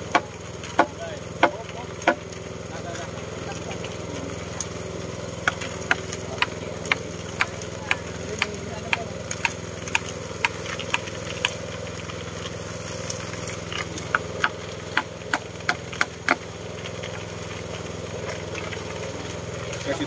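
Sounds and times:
engine idling: 0:00.0 - 0:20.0
sharp knocks: 0:00.1 - 0:02.2.

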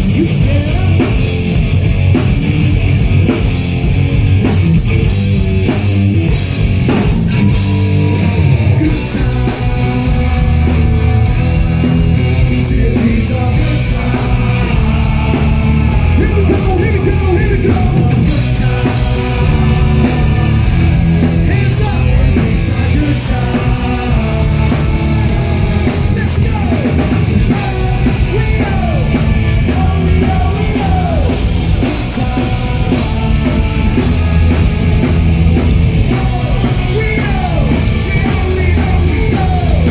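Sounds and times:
bass guitar: 0:00.0 - 0:39.9
drum kit: 0:00.0 - 0:39.9
electric guitar: 0:00.0 - 0:39.9
shouted vocals: 0:27.5 - 0:34.7.

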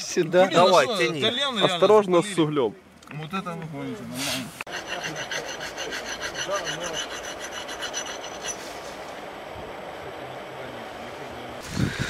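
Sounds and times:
steady hiss: 0:04.1 - 0:12.0
rapid rhythmic rasping: 0:04.6 - 0:08.7.

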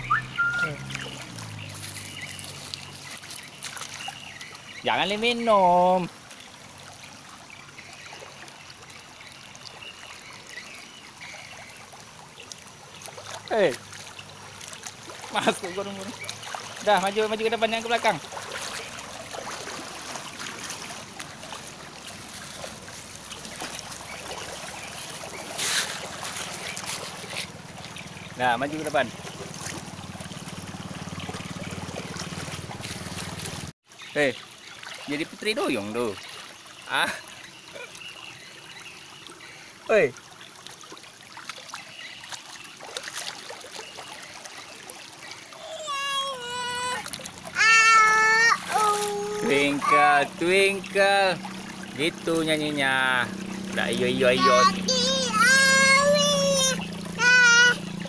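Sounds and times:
loud water splash: 0:00.0 - 0:06.2, 0:13.0 - 0:37.2, 0:42.7 - 0:58.0
river water running and splashing: 0:00.0 - 0:58.0
child's voice holding high note: 0:45.6 - 0:50.0, 0:54.4 - 0:57.8.

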